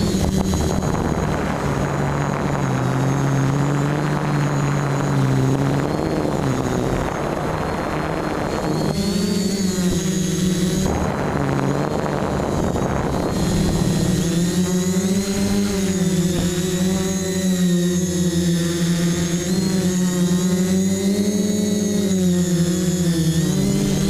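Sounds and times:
rushing air noise: 0.0 - 9.1
drone motors buzzing: 0.0 - 24.0.

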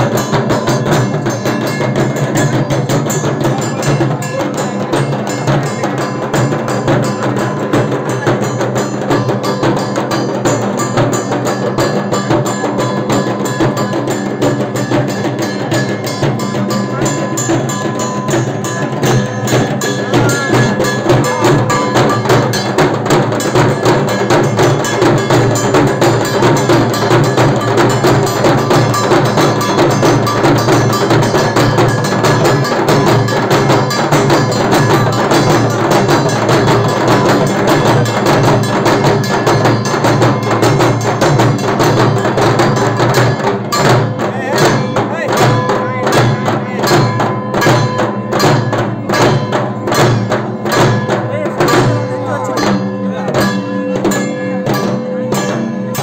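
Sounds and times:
barrel drums beaten fast: 0.0 - 56.0
metallic ringing: 0.0 - 56.0.

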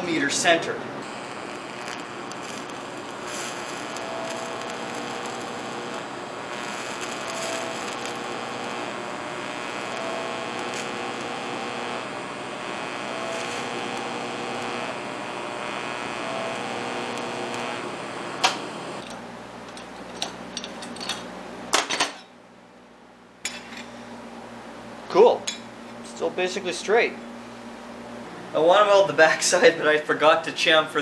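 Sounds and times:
welding arc sizzling: 0.0 - 21.7
metal clinks and knocks: 19.0 - 22.2.

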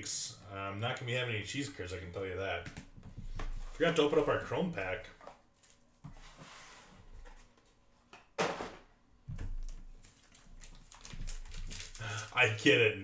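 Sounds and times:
card packaging rustling: 9.6 - 12.6.

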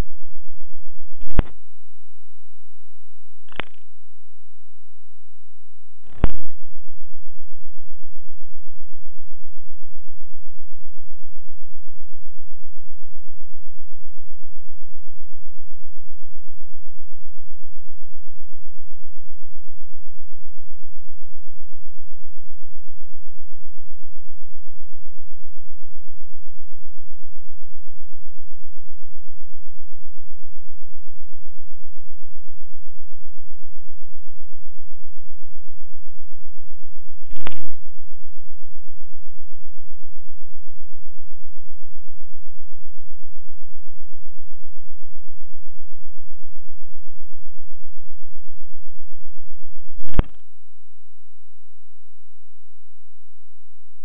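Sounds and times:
sharp click: 1.2 - 1.6, 3.5 - 4.0, 6.0 - 6.5, 37.3 - 37.8, 50.0 - 50.5.

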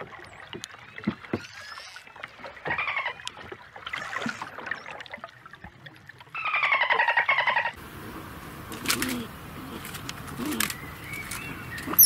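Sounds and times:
dolphins splashing: 6.3 - 12.0.

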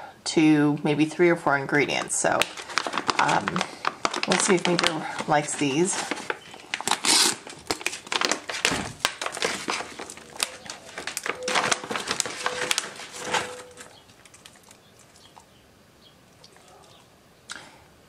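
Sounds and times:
plastic packaging crinkling: 1.8 - 15.5.

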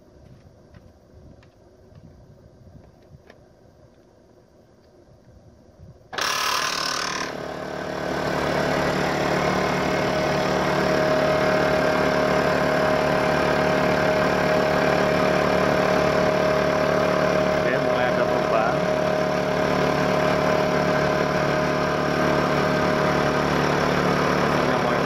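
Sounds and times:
air compressor running: 6.1 - 25.0.

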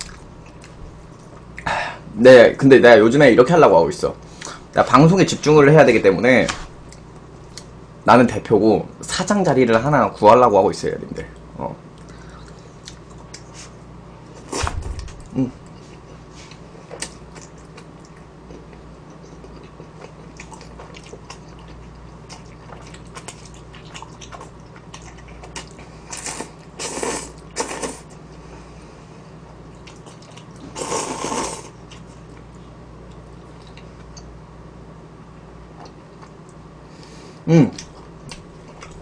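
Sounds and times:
soft chewing: 0.0 - 1.7, 11.3 - 13.8, 15.0 - 26.7, 29.4 - 34.4, 35.7 - 36.7, 37.7 - 39.0
noodle slurping: 26.1 - 28.0, 30.7 - 31.8.

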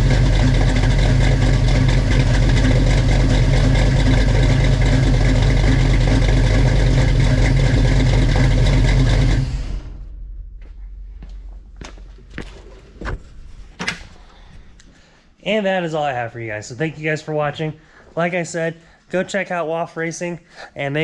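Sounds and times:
car engine idling: 0.0 - 13.6.

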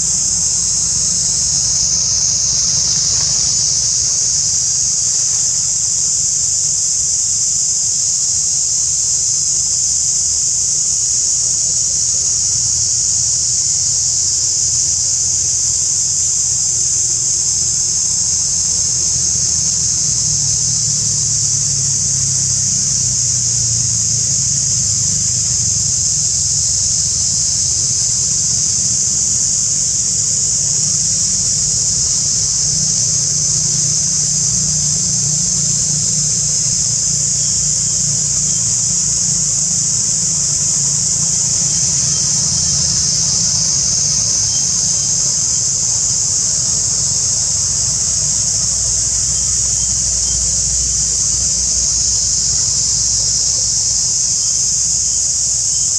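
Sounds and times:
insect chorus drone: 0.0 - 55.9
low steady rumble: 19.0 - 53.7.

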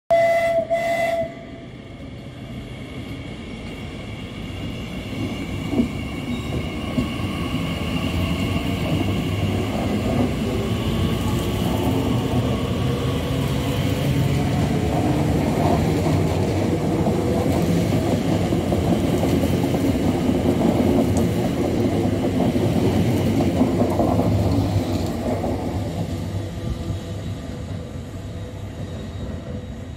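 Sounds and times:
train wheels rumbling on rails: 0.2 - 29.9
brief tone: 6.2 - 6.9.

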